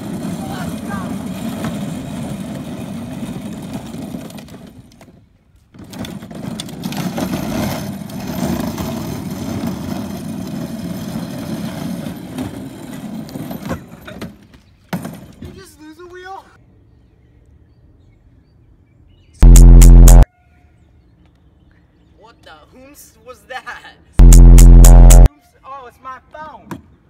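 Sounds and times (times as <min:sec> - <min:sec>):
plastic wagon wheels rolling on asphalt: 0:00.0 - 0:15.6.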